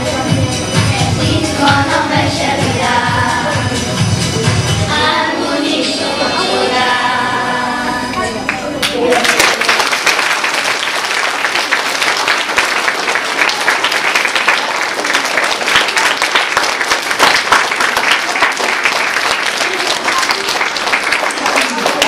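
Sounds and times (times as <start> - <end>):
children applauding: 8.5 - 22.0.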